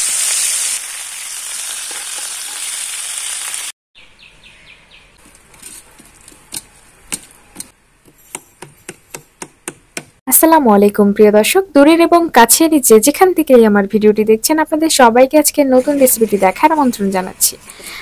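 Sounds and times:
fish sizzling in hot oil: 0.0s - 3.8s.

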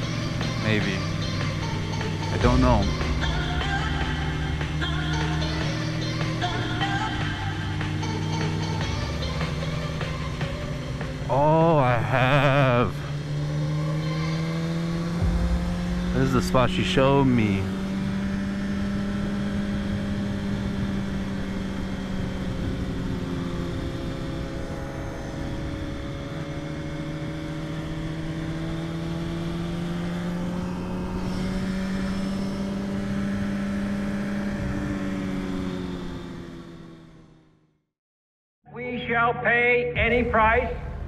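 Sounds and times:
motorcycle engine cruising: 0.0s - 37.8s
wind rushing: 15.2s - 18.3s.

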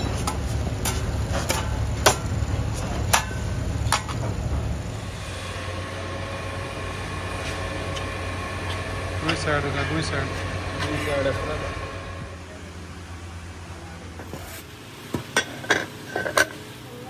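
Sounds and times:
steady low rumble: 0.0s - 13.9s.

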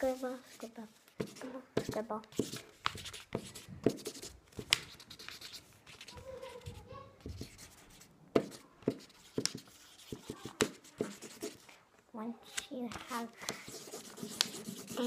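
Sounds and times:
highlighter scribbling on paper: 1.2s - 11.7s, 13.4s - 15.0s.

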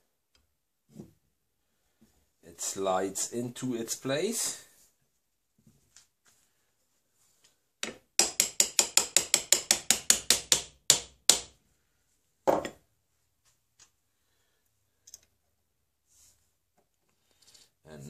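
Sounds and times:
small hammer tapping metal on wood: 7.8s - 11.5s.

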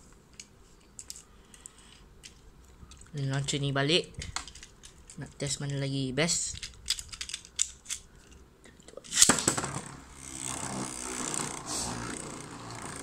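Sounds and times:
spinning top hitting plastic stadium: 9.1s - 10.0s
spinning top whirring scrape: 9.6s - 13.0s.

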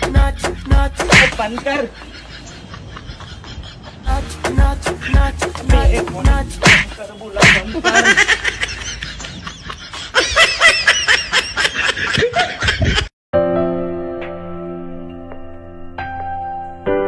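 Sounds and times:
background music: 0.0s - 1.9s, 4.0s - 8.0s, 13.4s - 17.0s
high choppy laughing: 0.0s - 13.1s
soft music with held notes: 13.4s - 17.0s.

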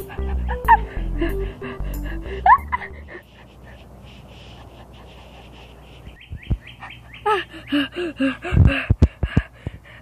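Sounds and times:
high chirping calls: 5.6s - 7.9s.

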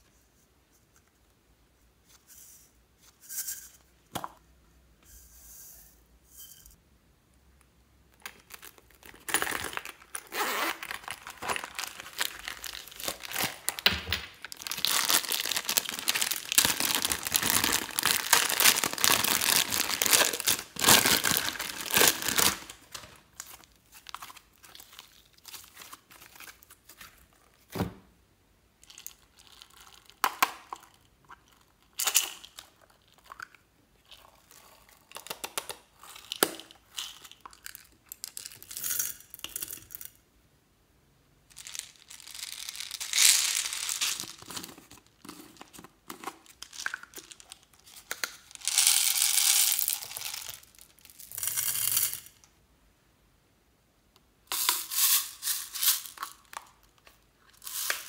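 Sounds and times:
vinyl purse crinkling: 8.2s - 27.5s, 41.6s - 51.4s.

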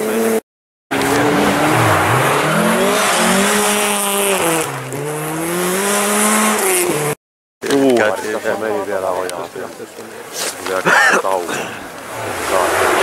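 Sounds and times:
rally car engine revving: 0.0s - 7.2s, 12.0s - 13.0s.

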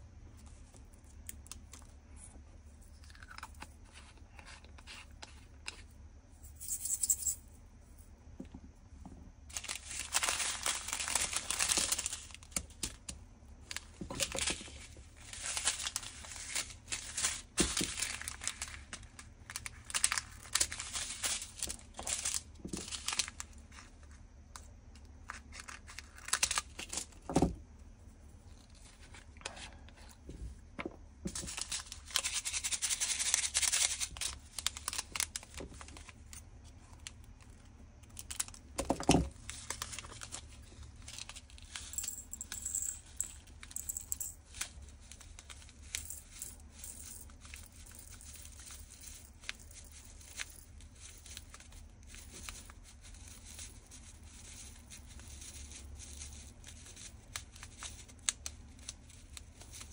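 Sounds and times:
plastic bags crinkling: 9.5s - 13.0s, 13.6s - 23.9s, 31.2s - 36.4s, 38.0s - 59.9s.

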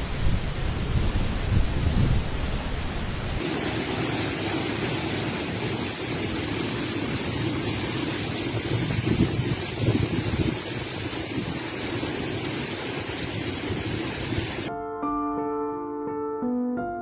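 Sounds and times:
wind buffeting microphone: 0.0s - 3.4s, 7.1s - 14.7s
wind-driven rain: 0.0s - 14.7s.

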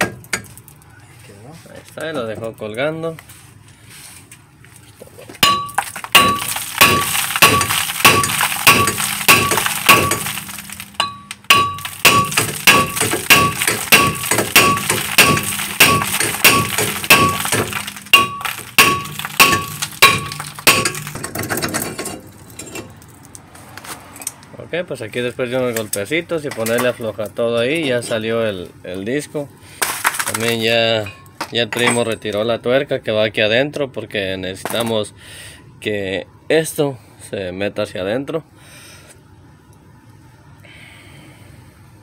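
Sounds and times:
hammer striking metal rotor: 5.4s - 22.2s.

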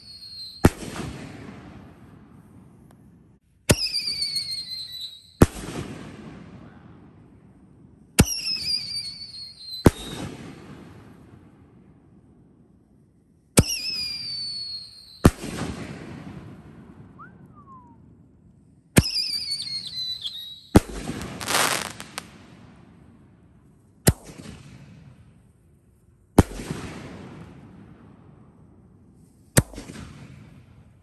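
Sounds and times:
falling firework whistle: 0.0s - 1.2s, 3.7s - 5.6s, 8.2s - 10.5s, 13.6s - 15.8s, 17.0s - 18.1s, 19.0s - 22.3s
firework burst with hissing crackle: 9.8s - 10.9s, 19.0s - 22.7s.

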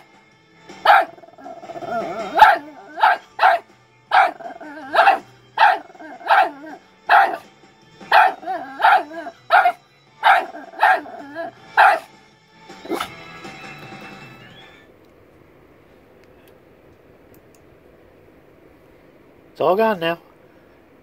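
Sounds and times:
music playing: 0.0s - 14.8s
small dog barking: 0.8s - 1.4s, 2.0s - 7.4s, 8.0s - 12.1s.

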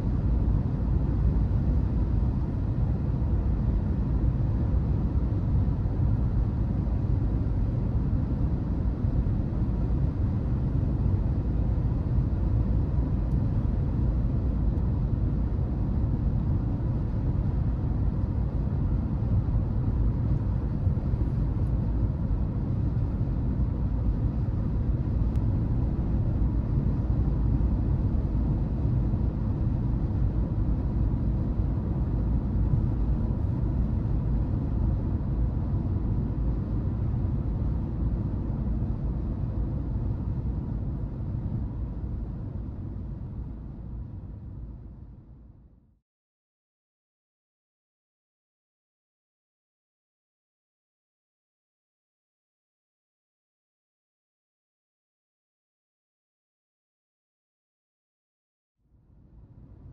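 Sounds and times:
car engine and tyre rumble: 0.0s - 45.3s.

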